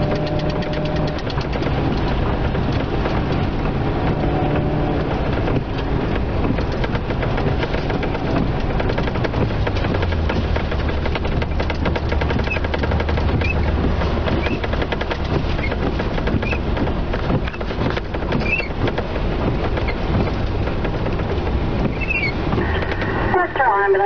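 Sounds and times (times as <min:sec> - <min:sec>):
heavy rain drumming on car roof: 0:00.0 - 0:24.0
faint short squeaks: 0:21.9 - 0:22.4.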